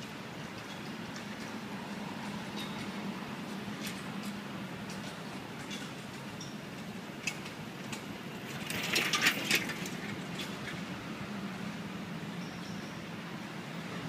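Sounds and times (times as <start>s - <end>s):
low hum of traffic: 0.0s - 14.0s
clicks and clatter: 7.2s - 10.8s.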